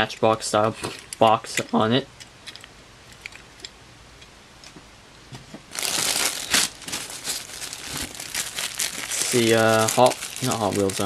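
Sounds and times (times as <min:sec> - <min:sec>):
plastic bags crinkling: 0:05.7 - 0:11.0.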